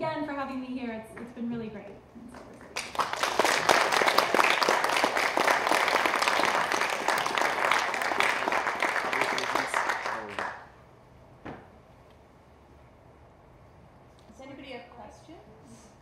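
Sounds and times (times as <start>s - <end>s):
audience applauding: 2.4s - 10.7s.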